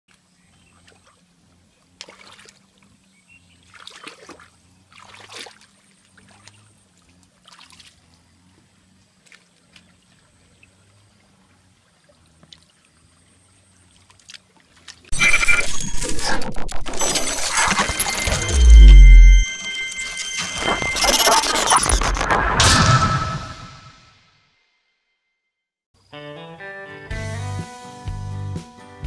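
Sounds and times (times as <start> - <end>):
hands splashing in muddy water: 3.6 - 6.7.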